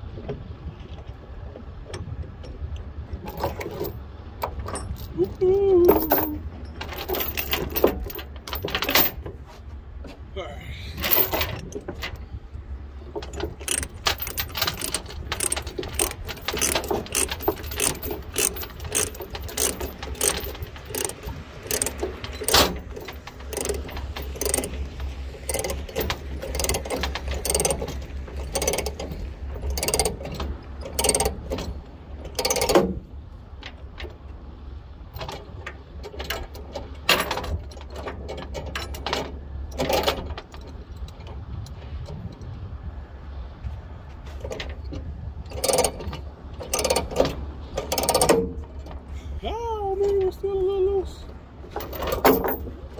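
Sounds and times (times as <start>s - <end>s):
chain links clinking: 4.6s - 9.2s, 11.0s - 12.2s, 13.2s - 31.3s, 51.7s - 52.8s
ratchet binder clicking: 13.3s - 29.1s, 29.7s - 30.2s, 30.9s - 31.4s.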